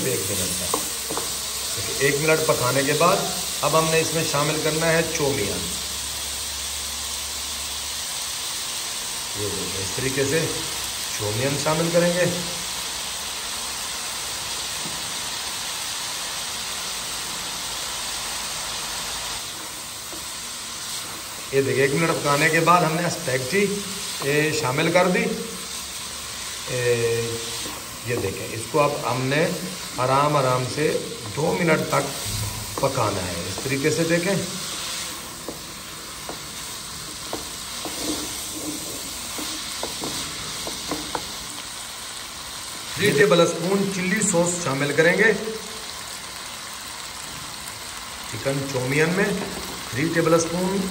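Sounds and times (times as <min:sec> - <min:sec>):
noodles sizzling in hot oil: 0:00.0 - 0:50.9
spatula tapping and scraping pan: 0:00.7 - 0:01.4, 0:35.4 - 0:41.4.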